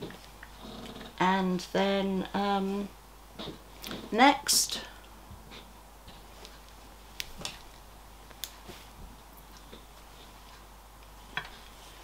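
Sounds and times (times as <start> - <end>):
soft fabric rustling: 5.5 - 10.6.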